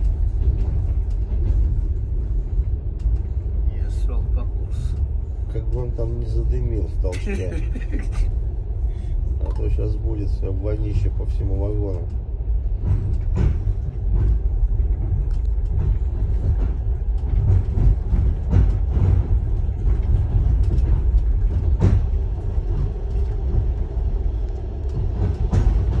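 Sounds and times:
train running low rumble: 0.0s - 26.0s
knocks and rattles: 10.8s - 26.0s.

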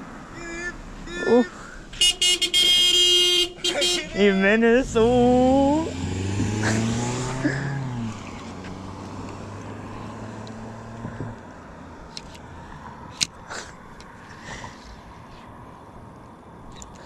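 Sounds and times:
car driving past: 0.0s - 13.1s.

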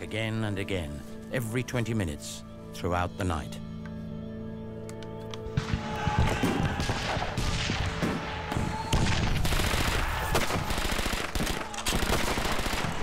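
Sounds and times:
rifle and machine-gun fire: 5.6s - 13.0s.

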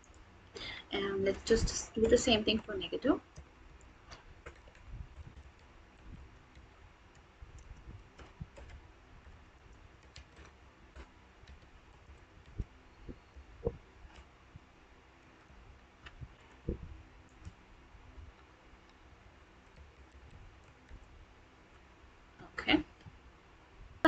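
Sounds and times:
typing on computer keyboard: 4.1s - 8.8s, 9.6s - 12.7s.

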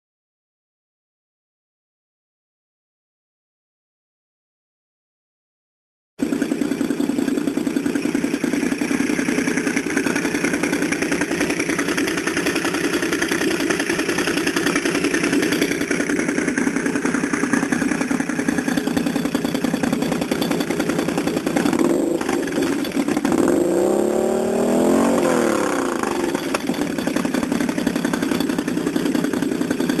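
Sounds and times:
atv engine running: 6.2s - 30.0s.

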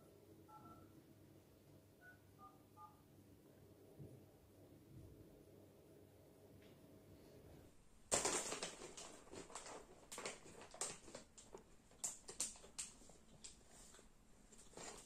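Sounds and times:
crisp bag crinkling: 8.1s - 15.0s.

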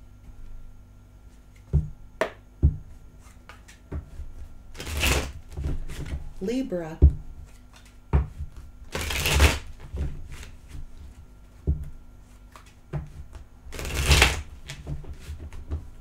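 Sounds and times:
cards being shuffled: 3.2s - 6.2s, 7.4s - 11.2s, 12.2s - 15.7s
cards tapping and knocking: 7.0s - 11.9s, 12.5s - 15.9s.

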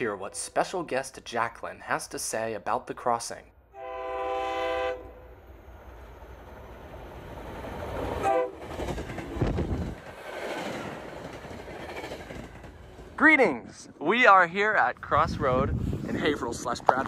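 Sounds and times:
train horn blast: 3.7s - 5.2s, 8.2s - 8.6s
train wheels rumbling on rails: 5.8s - 14.2s
clickety-clack of coaches: 8.2s - 13.2s.

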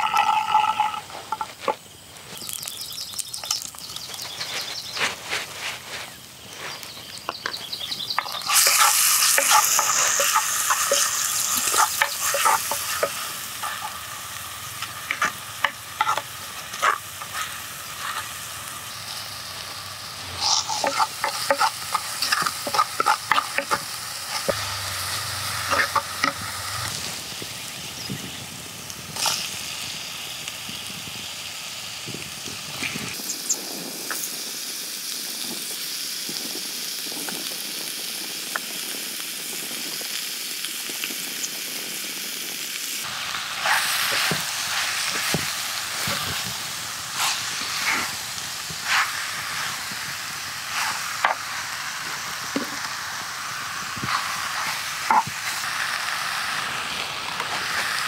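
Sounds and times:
chili and garlic sizzling in oil: 0.0s - 58.0s.

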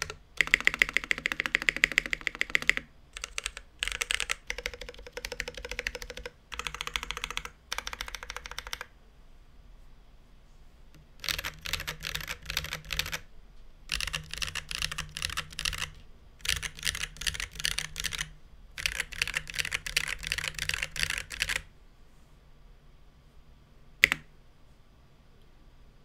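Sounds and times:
typing on mechanical keyboard: 0.0s - 8.9s, 11.2s - 13.2s, 13.9s - 21.7s, 24.0s - 24.2s.

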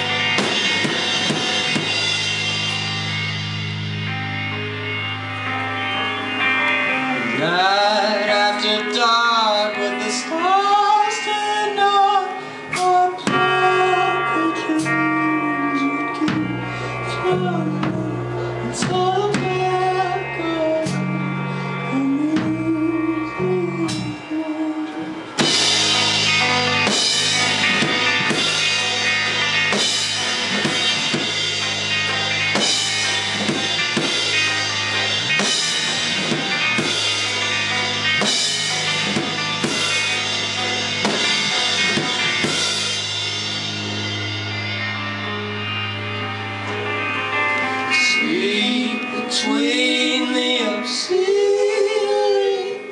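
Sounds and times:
drum kit with cymbals: 0.0s - 6.6s, 25.2s - 47.0s
guitars: 0.0s - 52.9s
live rock band playing: 0.0s - 52.9s.

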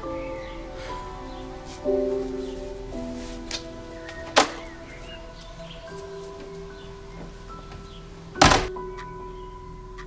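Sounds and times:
background music with held tones: 0.0s - 10.0s
front door slamming: 4.2s - 4.9s, 7.2s - 8.8s.

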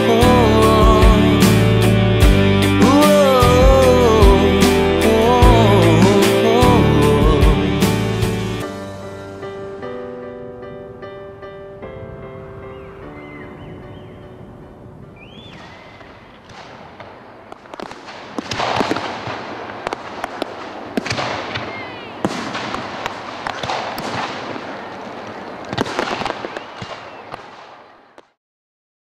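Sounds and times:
firework whistles: 15.2s - 16.8s, 19.8s - 28.3s
fireworks bangs and crackling: 15.5s - 28.4s.

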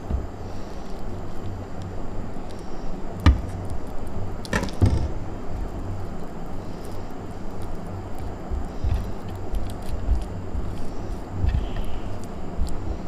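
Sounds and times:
knife chopping on wooden board: 3.3s - 3.6s.

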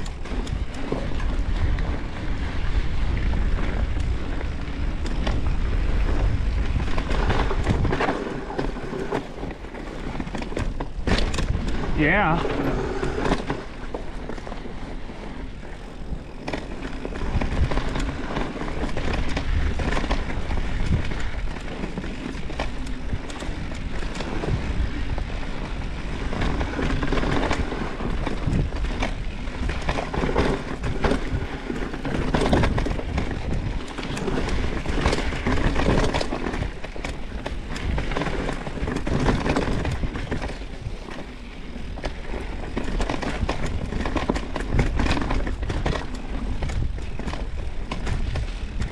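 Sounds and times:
bike rattling and knocking: 0.0s - 48.9s
bike tyres rumbling on trail: 0.0s - 48.9s.

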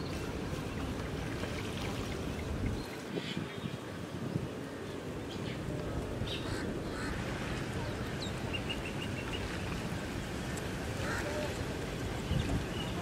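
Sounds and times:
birds calling: 0.0s - 9.8s
low outdoor rush: 0.0s - 13.0s.

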